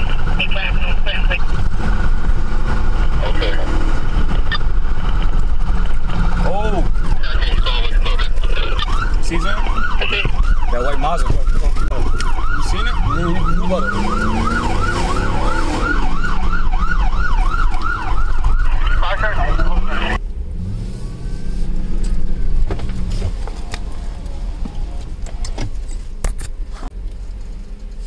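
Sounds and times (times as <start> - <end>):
car running noise: 0.0 - 28.0
police siren yelping: 3.1 - 20.2.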